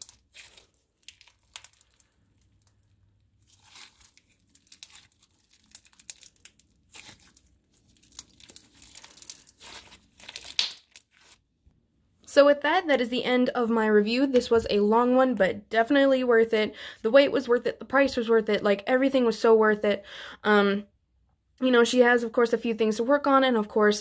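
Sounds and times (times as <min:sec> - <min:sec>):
slime crackling when squeezed by hand: 0:00.0 - 0:11.4.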